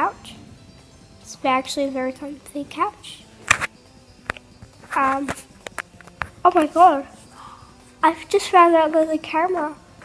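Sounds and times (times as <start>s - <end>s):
sharp click: 3.4s - 4.4s
phone handling rustle: 3.5s - 6.4s.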